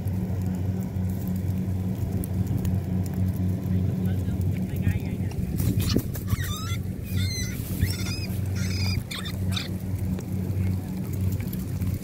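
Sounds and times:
boat engine humming: 0.0s - 12.0s
rats squeaking: 5.7s - 9.8s.

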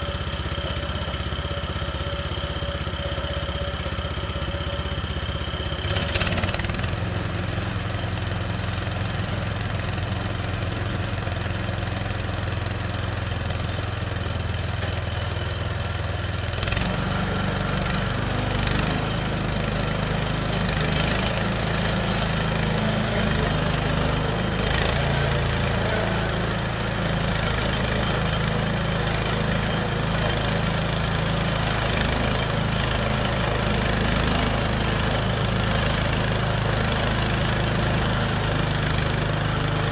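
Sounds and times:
sawmill gasoline engine running: 0.0s - 39.9s.

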